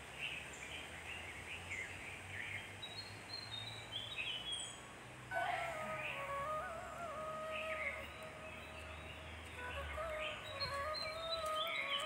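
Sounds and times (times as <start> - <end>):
birds chirping: 0.0 - 12.0
faint low steady hum: 0.0 - 12.0
held musical tone: 5.3 - 12.0.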